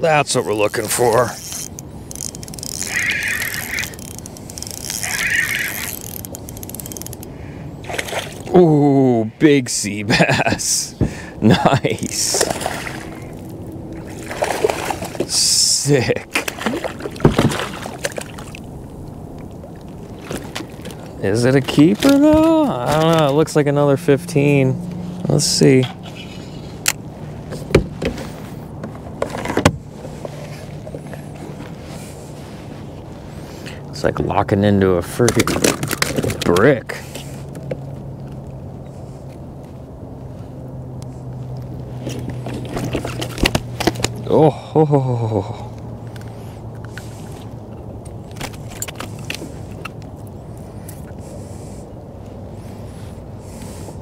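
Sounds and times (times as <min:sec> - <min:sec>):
fishing reel clicking whir: 0:00.9 - 0:07.3.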